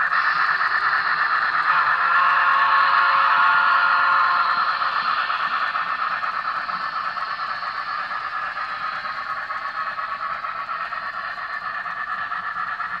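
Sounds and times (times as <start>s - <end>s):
model trains whirring on track: 0.0s - 13.0s.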